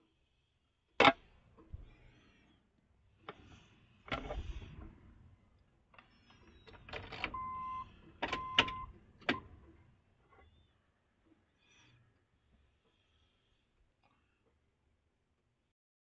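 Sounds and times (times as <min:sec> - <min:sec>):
short electronic beeps: 0:07.3 - 0:08.9.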